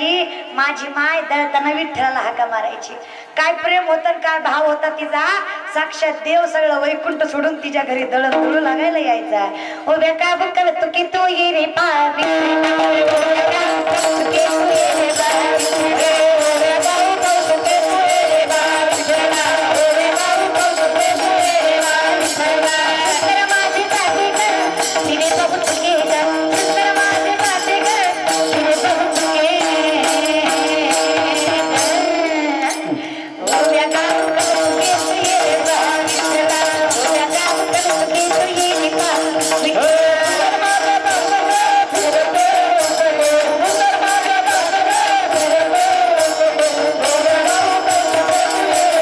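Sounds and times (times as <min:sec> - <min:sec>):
person singing: 0:11.5 - 0:49.0.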